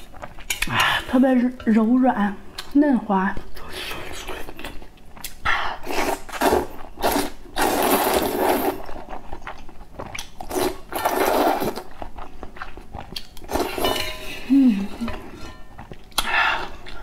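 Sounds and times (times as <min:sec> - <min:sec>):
person chewing: 0:04.1 - 0:17.0
noodles being slurped: 0:05.8 - 0:12.0.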